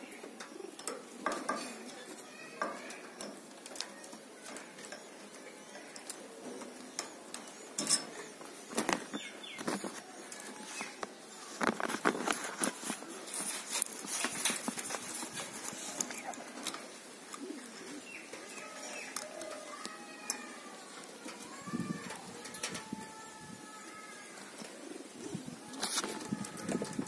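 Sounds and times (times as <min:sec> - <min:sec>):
pliers and wire clicking on bamboo: 0:18.4 - 0:23.2.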